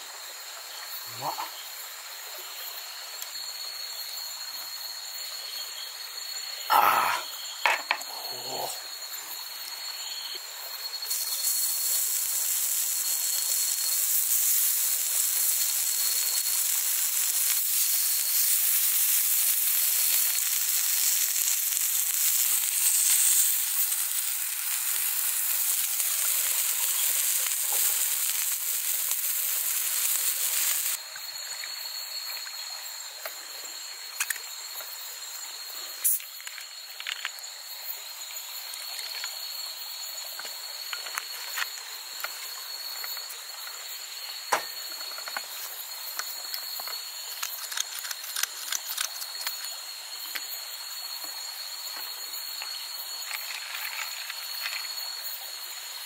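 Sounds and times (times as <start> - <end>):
crickets trilling: 0.0 - 56.0
meat sizzling: 10.9 - 31.0.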